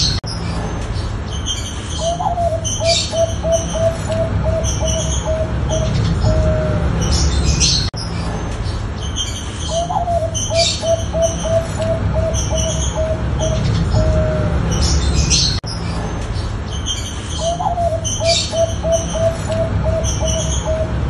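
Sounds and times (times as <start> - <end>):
small birds chirping: 0.0 - 21.0
dove cooing: 2.0 - 7.7, 9.7 - 15.5, 17.4 - 21.0.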